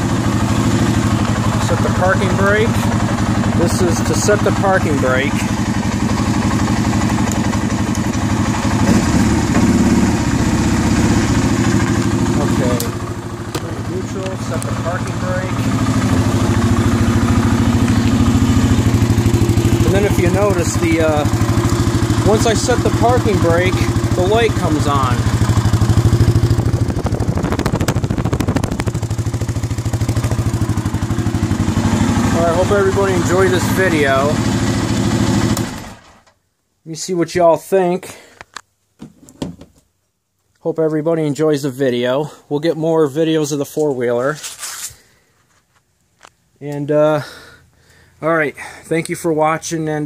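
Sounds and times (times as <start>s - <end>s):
atv engine idling: 0.0s - 36.2s.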